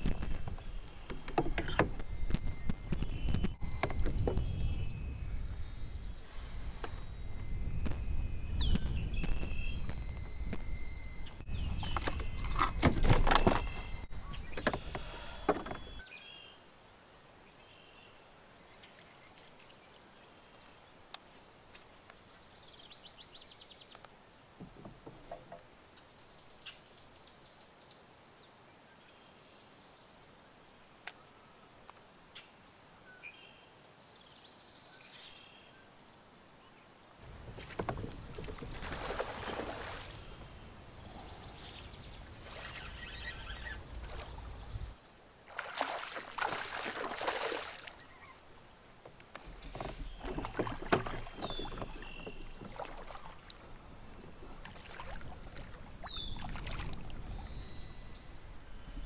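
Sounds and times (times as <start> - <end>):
bird calls: 0.0 - 16.6, 37.6 - 45.1, 47.3 - 48.7, 49.3 - 59.0
water splashing: 37.3 - 40.6, 45.4 - 48.2, 49.5 - 57.6.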